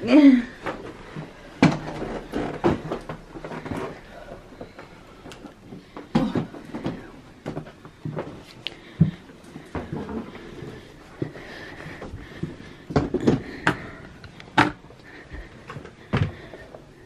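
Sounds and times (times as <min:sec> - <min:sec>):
suitcases knocking and bumping: 0:00.6 - 0:04.0, 0:05.7 - 0:08.4, 0:12.2 - 0:14.8
creaks: 0:01.6 - 0:04.9.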